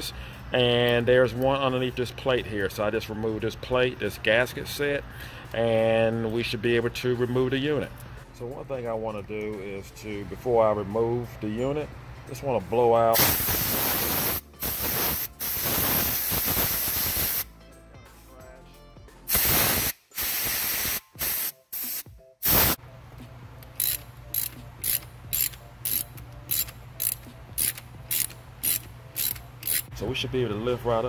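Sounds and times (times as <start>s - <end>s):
air blow gun hissing: 13.2s - 17.5s, 19.3s - 22.8s
hand ratchet clicking: 23.6s - 29.9s.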